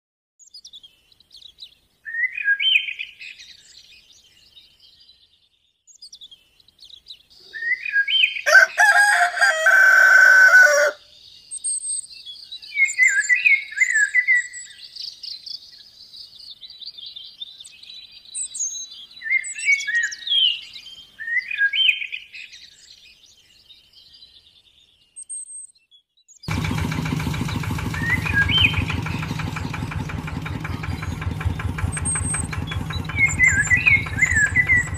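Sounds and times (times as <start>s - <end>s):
small birds chirping: 0.4s - 34.9s
rooster crowing: 8.4s - 11.1s
small motor humming: 26.5s - 34.9s.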